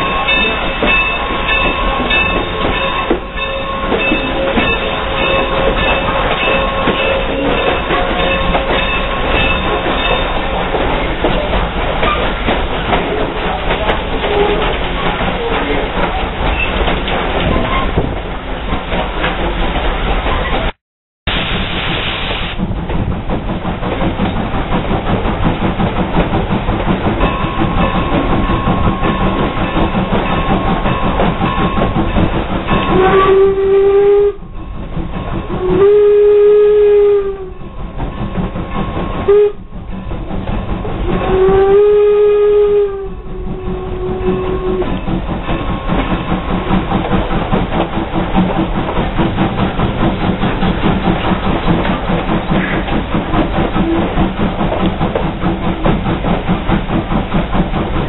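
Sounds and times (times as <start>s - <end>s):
train rumble and clickety-clack: 0.0s - 58.0s
steam locomotive whistle: 14.2s - 14.8s, 32.7s - 34.6s, 35.4s - 37.8s, 39.0s - 39.8s, 41.0s - 45.1s, 53.8s - 54.2s.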